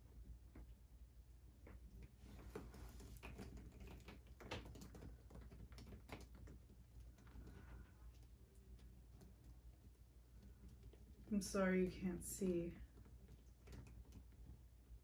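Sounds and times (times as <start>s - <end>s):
wet canvas clicks and knocks: 1.6s - 7.6s.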